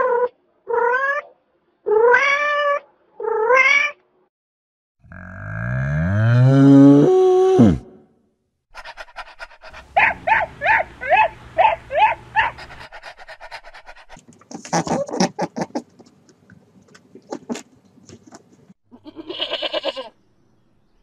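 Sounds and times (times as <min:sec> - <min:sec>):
small dog panting: 0:08.8 - 0:10.5, 0:11.9 - 0:14.7
rough animal noise: 0:08.8 - 0:20.1.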